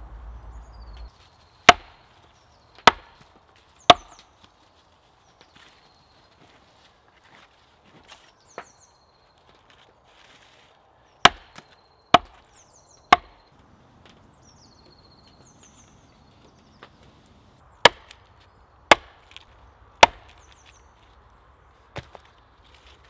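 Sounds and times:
hatchet chopping wood: 1.6s - 2.1s, 2.8s - 4.3s, 11.2s - 12.5s, 13.1s - 13.5s, 17.8s - 18.2s, 18.9s - 20.6s.

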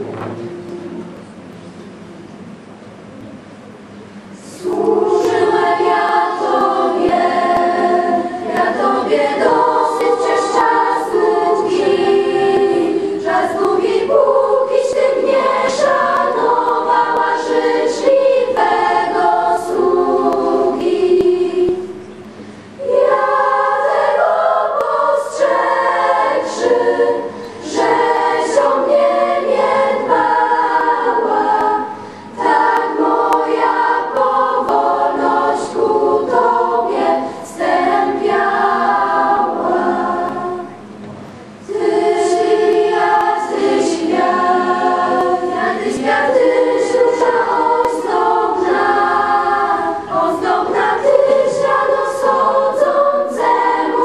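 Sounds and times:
choir singing: 4.4s - 22.2s, 22.8s - 54.0s.

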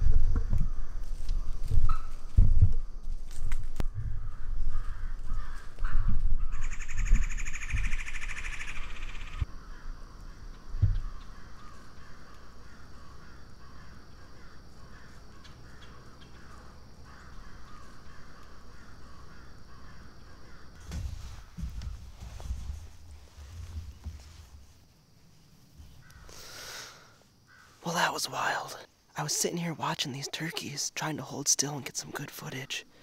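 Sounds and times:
low thumps of person shifting: 20.8s - 25.0s.

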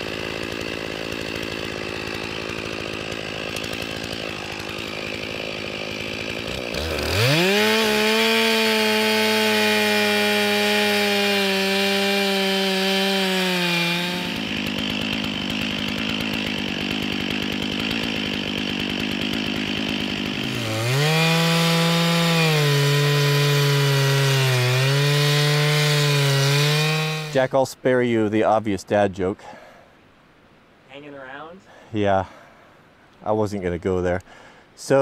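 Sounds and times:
chainsaw cutting into wood: 0.0s - 27.5s
chainsaw running at full throttle: 0.0s - 27.5s.

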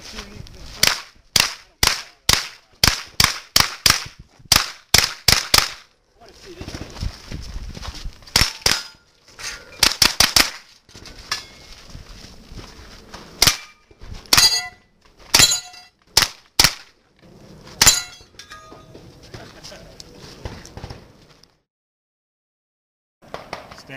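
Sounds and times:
gunshots: 0.8s - 5.9s, 9.8s - 10.6s, 16.2s - 16.9s
steel targets ringing: 14.4s - 14.8s, 15.4s - 16.0s, 17.8s - 18.9s.

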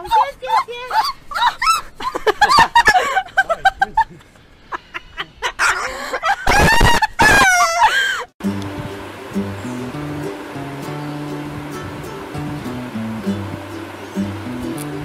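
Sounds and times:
acoustic guitar music: 8.4s - 15.0s.

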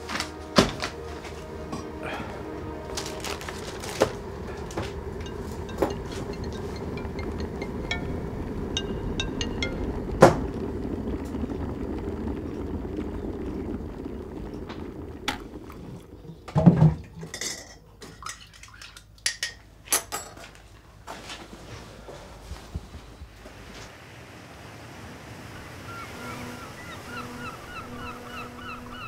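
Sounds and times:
low rumble: 0.5s - 17.1s.

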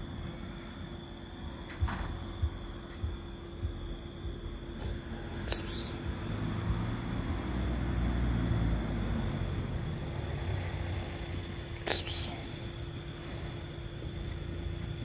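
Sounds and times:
low road traffic rumble: 0.0s - 15.0s
steady electrical hum: 0.0s - 15.0s.

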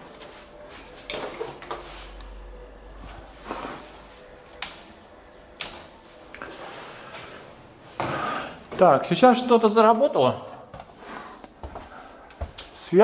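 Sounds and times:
circuit breakers snapping on: 4.4s - 6.4s.

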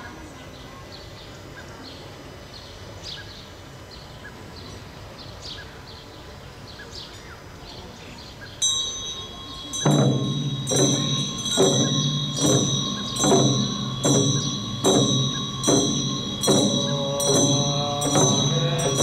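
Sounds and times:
small birds chirping: 0.0s - 19.0s
cymbals ringing: 8.6s - 19.0s
frame drums and cymbals struck: 8.6s - 19.0s.

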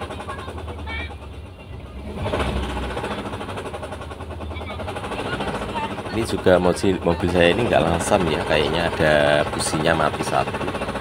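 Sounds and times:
van engine idling unevenly: 0.0s - 11.0s.

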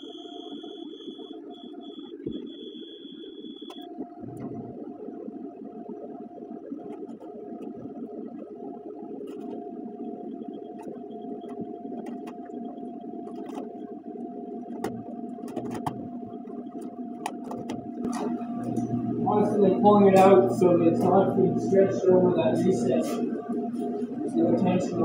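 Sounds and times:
vinyl film rustling and clicking: 6.4s - 18.9s
heat gun fan whining: 17.2s - 25.0s.

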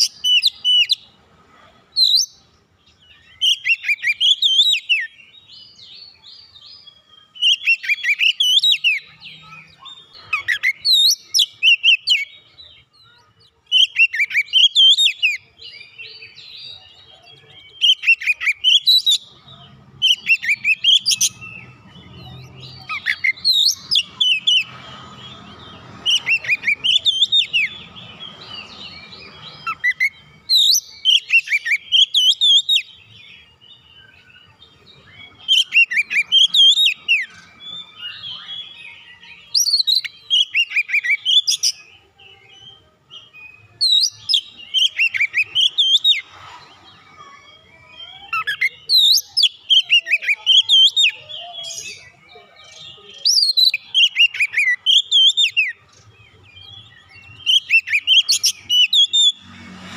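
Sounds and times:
bird singing whistled phrases: 29.4s - 33.0s, 33.8s - 41.9s, 43.1s - 46.3s, 47.2s - 52.2s, 53.0s - 56.0s, 56.6s - 59.4s.

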